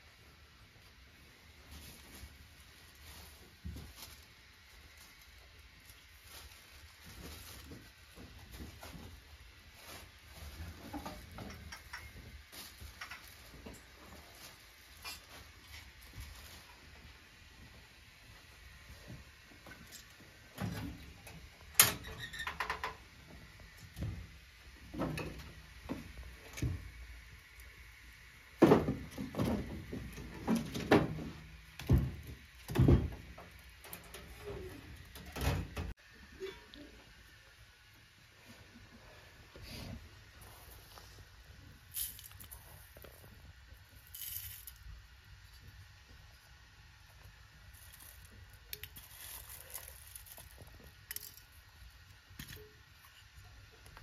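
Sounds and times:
rustling with light clicks: 1.6s - 17.1s, 41.9s - 46.2s, 47.1s - 54.0s
wooden knocks of firewood: 28.6s - 33.5s.

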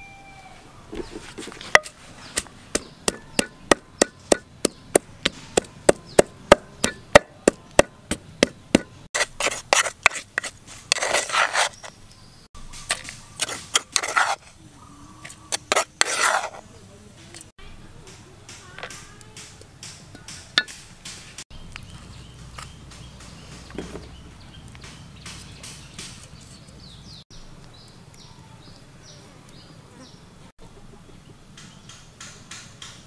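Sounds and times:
pestle scraping and grinding: 0.9s - 14.6s, 15.2s - 16.7s
pestle pounding in mortar: 1.8s - 11.1s, 19.4s - 21.4s.

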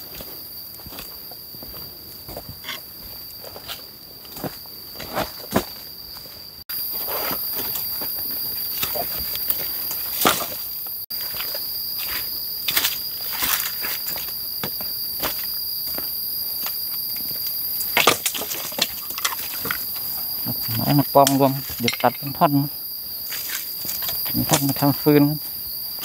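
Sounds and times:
insects droning: 0.0s - 26.0s
footsteps on dry leaves: 6.7s - 16.8s.

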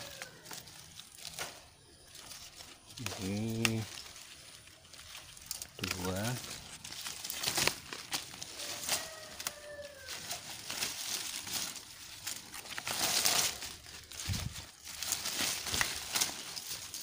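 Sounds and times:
leaves rustling and crinkling: 0.0s - 17.0s.

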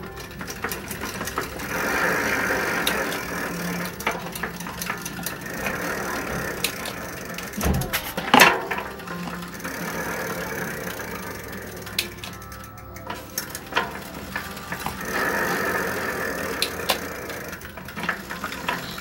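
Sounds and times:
bike drivetrain ticking and ratcheting: 0.0s - 19.0s
loud knock: 7.6s - 8.4s.

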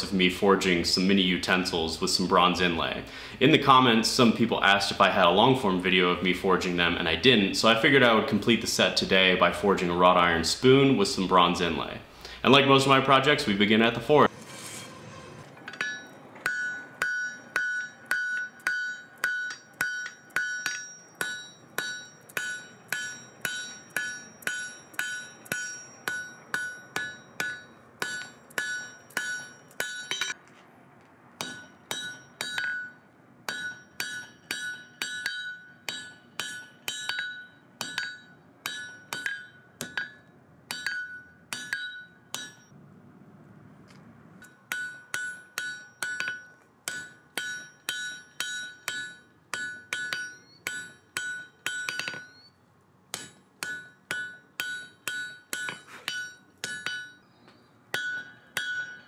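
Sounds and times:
hammer striking iron on anvil: 15.7s - 30.4s, 31.4s - 42.7s, 44.4s - 52.5s, 53.1s - 57.2s, 57.9s - 59.0s.

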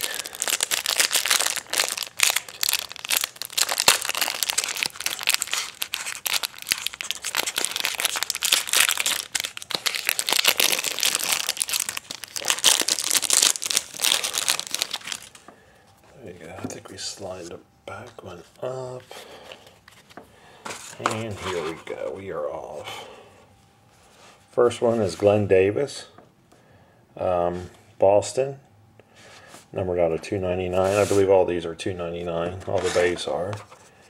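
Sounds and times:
plastic wrapper crinkling: 0.0s - 15.5s.

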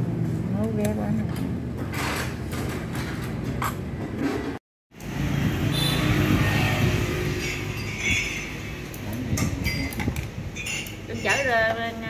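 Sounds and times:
vehicle engine passing by: 5.0s - 7.7s.

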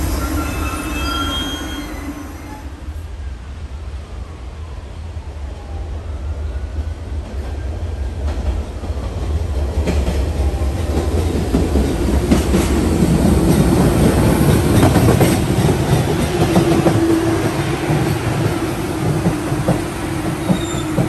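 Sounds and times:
subway train wheels clacking: 0.0s - 3.2s, 6.7s - 21.0s.

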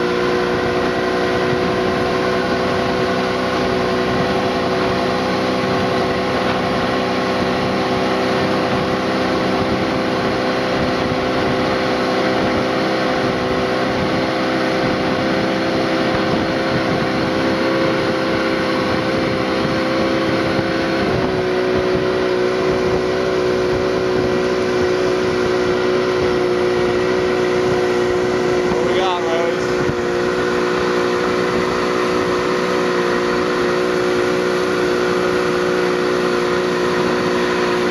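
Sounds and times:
motorboat engine running: 0.0s - 37.9s
wind and water rushing: 0.0s - 37.9s.

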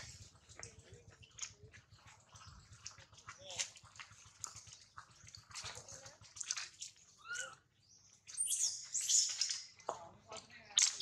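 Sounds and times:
high-pitched animal calls and chirps: 6.8s - 9.8s.

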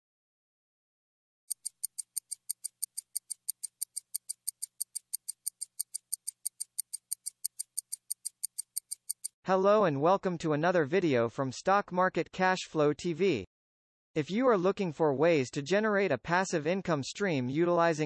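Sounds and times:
clock ticking fast: 1.5s - 9.4s.

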